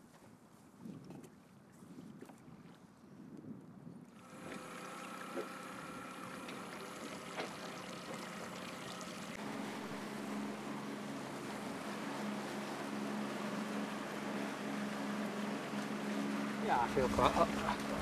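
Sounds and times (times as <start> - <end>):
outboard motor running: 4.1 - 18.0
water rushing past hull: 4.2 - 18.0.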